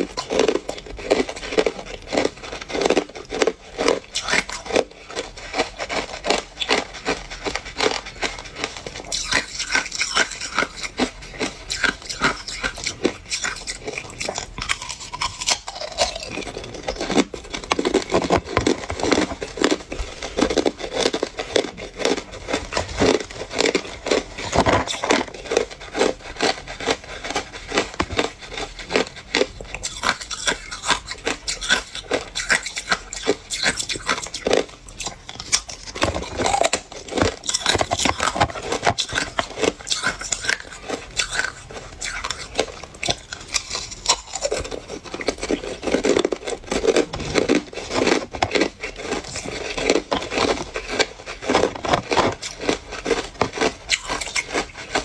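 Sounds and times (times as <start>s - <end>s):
ice cubes crunching and cracking: 0.0s - 55.0s.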